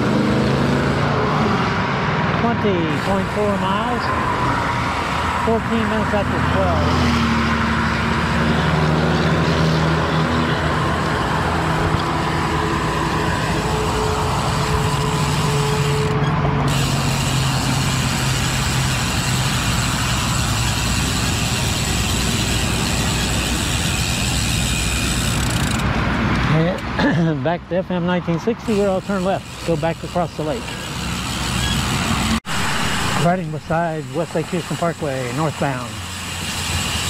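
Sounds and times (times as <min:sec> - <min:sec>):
vehicle engine hum: 0:00.0 - 0:37.0
continuous rushing noise: 0:02.2 - 0:07.1, 0:07.9 - 0:37.0.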